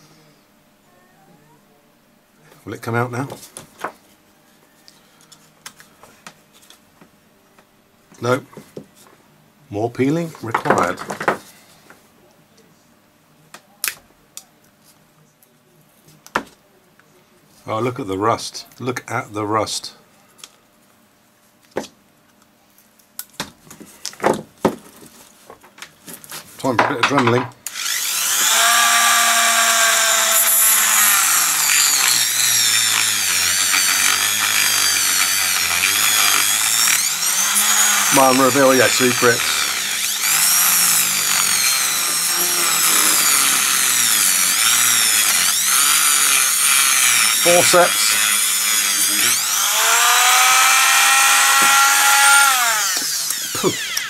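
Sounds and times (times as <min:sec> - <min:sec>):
side cutters clicking and scraping: 0:27.6 - 0:54.0.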